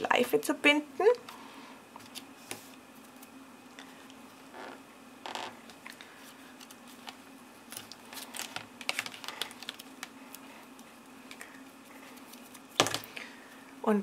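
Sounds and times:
faint steady hum: 0:00.0 - 0:14.0
paper clicks and rustles: 0:06.3 - 0:13.1.

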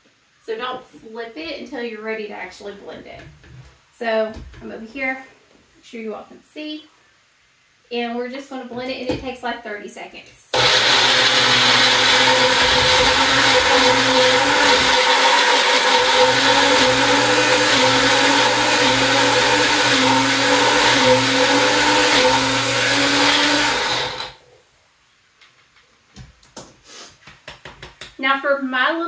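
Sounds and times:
blender motor whine: 0:10.6 - 0:24.4.

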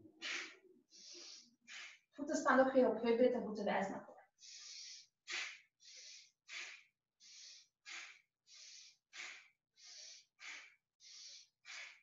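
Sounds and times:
rapid forceful breathing: 0:00.0 - 0:02.2, 0:04.4 - 0:12.0.

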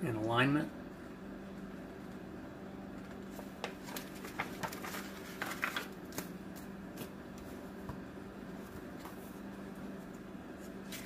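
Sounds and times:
paper rustling: 0:03.3 - 0:07.1.

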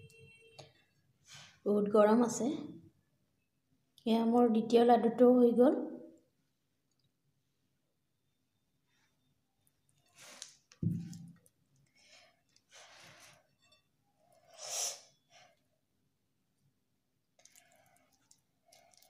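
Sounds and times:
dull thump: 0:10.8 - 0:11.2.

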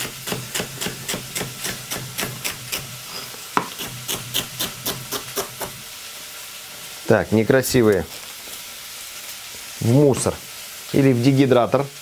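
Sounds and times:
knife chopping on cutting board: 0:00.0 - 0:02.9, 0:03.6 - 0:05.8.

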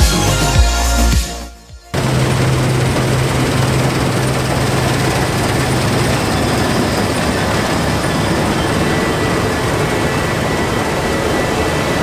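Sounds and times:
low hum: 0:01.9 - 0:11.5
combine harvester running: 0:01.9 - 0:12.0.

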